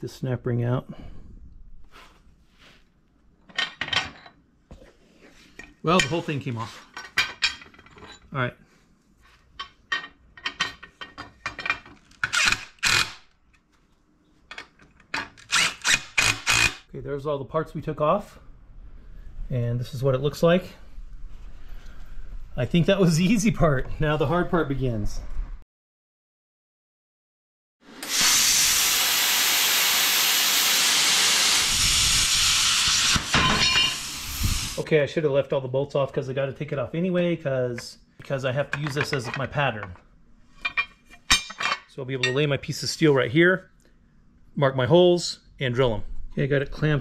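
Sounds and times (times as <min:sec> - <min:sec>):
plasma cutter hissing: 0:28.0 - 0:34.8.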